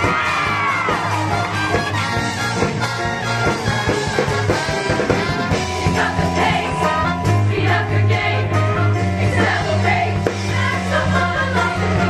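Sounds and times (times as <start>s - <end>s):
instrumental accompaniment with beat: 0.0s - 12.0s
choir singing: 5.5s - 12.0s.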